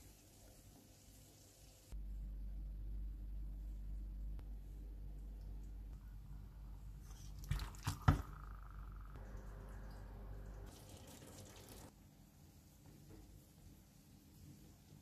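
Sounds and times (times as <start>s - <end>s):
low hum: 2.0s - 11.9s
water boiling in a pot: 7.2s - 12.0s.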